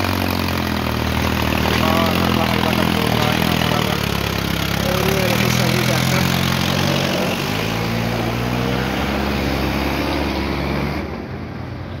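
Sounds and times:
tractor diesel engine running: 0.0s - 10.2s.

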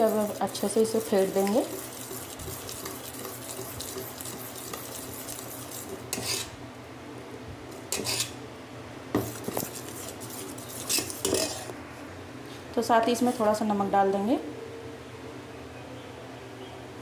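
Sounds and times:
ladle stirring batter: 0.0s - 6.5s, 7.8s - 8.4s, 9.2s - 11.8s.

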